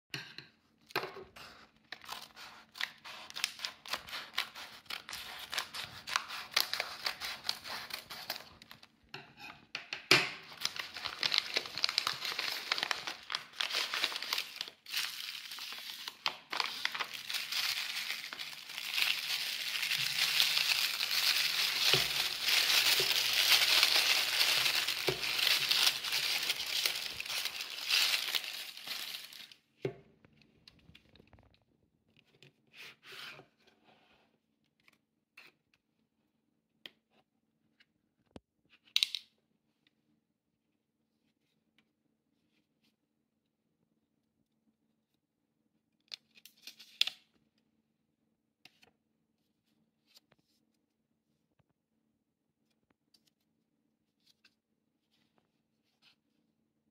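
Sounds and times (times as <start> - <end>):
paper and wrapping crinkling: 1.4 - 8.9, 10.4 - 29.6.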